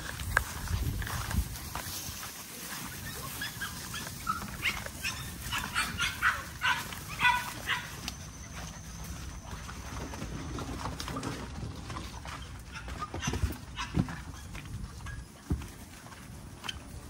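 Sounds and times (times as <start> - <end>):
puppies yipping: 1.8 - 11.3, 12.1 - 15.8.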